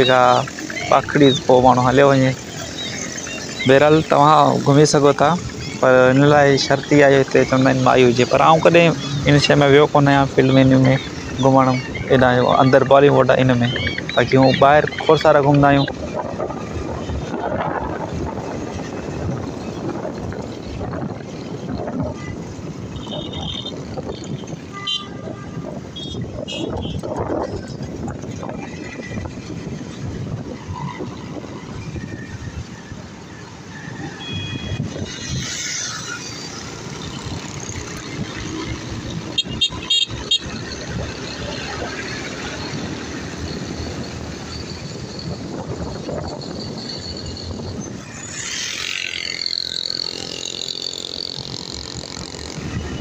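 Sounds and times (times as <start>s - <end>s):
motorbike road noise: 0.0s - 53.0s
wind rushing over microphone: 0.0s - 53.0s
vehicle horn toots: 22.2s - 23.8s, 24.7s - 27.1s, 34.2s - 35.0s, 39.4s - 40.5s.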